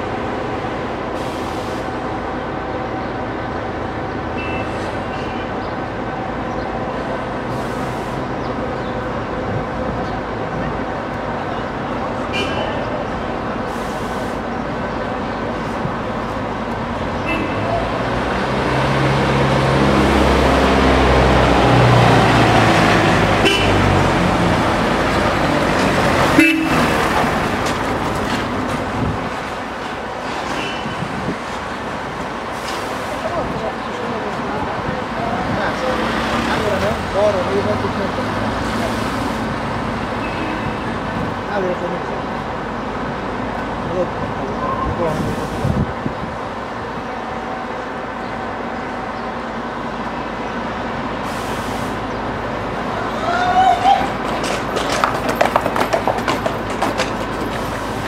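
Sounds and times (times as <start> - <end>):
city street traffic: 0.0 - 58.0
car horn toots: 17.2 - 17.7, 23.4 - 23.8, 26.4 - 26.9
heavy vehicle engine running: 54.1 - 58.0.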